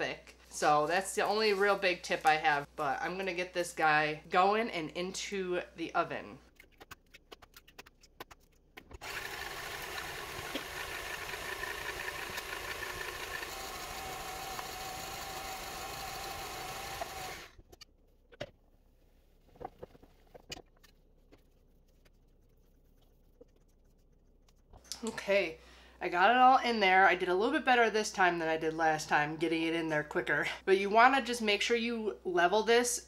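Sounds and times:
stand mixer whirring: 0:09.0 - 0:17.5.

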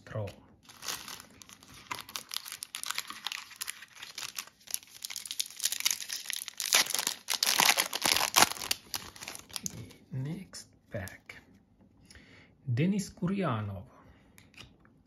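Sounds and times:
foil wrapper crinkling and tearing: 0:00.6 - 0:09.8.

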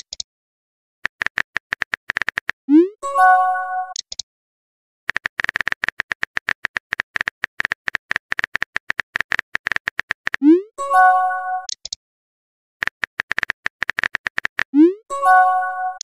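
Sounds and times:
keyboard typing clicks: 0:01.0 - 0:02.6, 0:03.9 - 0:04.2, 0:05.1 - 0:10.6, 0:11.6 - 0:12.0, 0:12.8 - 0:14.9
chiming message tone: 0:02.8 - 0:03.9, 0:10.5 - 0:11.7, 0:14.9 - 0:16.0.

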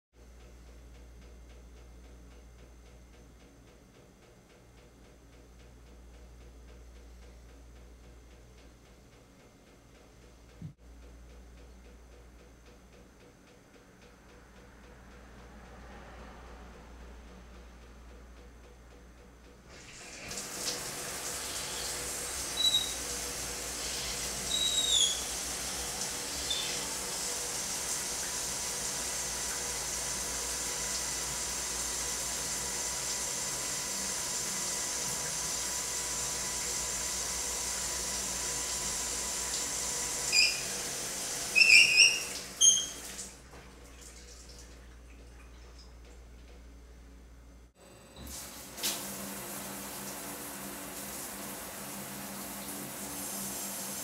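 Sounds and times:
shower spray hissing: 0:19.7 - 0:43.3
high-pitched plumbing squeals: 0:21.2 - 0:28.0, 0:34.7 - 0:43.3
high squeaks: 0:22.6 - 0:23.0, 0:24.4 - 0:25.3, 0:40.3 - 0:40.7, 0:41.5 - 0:43.1.

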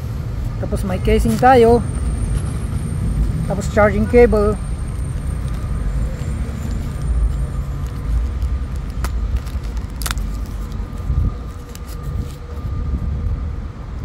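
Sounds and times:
steady low rumble: 0:00.0 - 0:14.0
handling camera accessories: 0:04.8 - 0:12.7.

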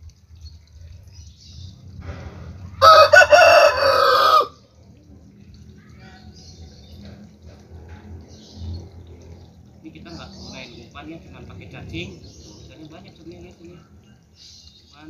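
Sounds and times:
rooster crowing: 0:02.8 - 0:04.6.

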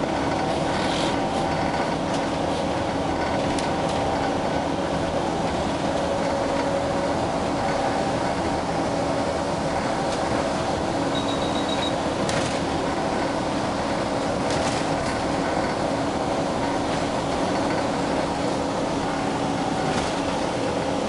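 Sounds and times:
bus engine and road noise: 0:00.0 - 0:21.0.

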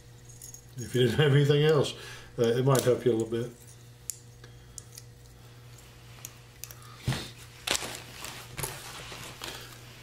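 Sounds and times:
rummaging in a backpack: 0:07.1 - 0:10.0.

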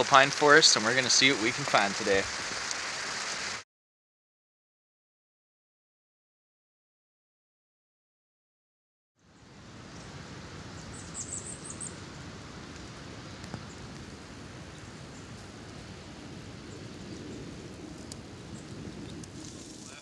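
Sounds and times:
forest air rushing: 0:09.3 - 0:20.0.

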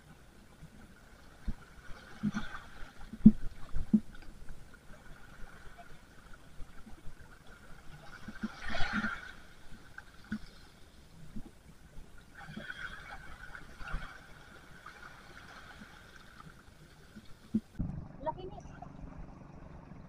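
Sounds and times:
small waves lapping on beach: 0:12.2 - 0:17.8.

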